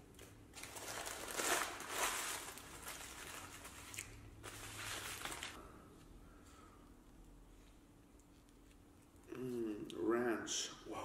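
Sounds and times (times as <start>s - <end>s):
paper wrappers rustling and crinkling: 0.5s - 5.6s.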